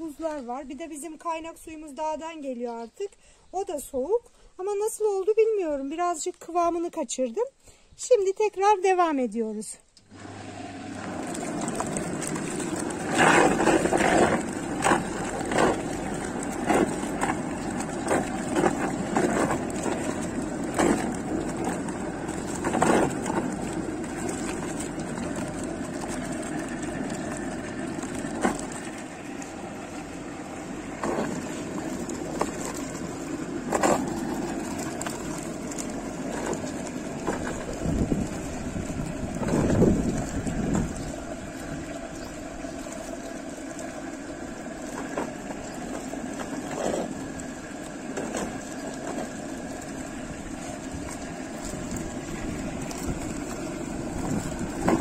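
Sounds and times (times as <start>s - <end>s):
churn motor humming: 10.0s - 55.0s
splashes and knocks in drum: 11.1s - 29.5s, 30.8s - 41.9s, 44.8s - 55.0s.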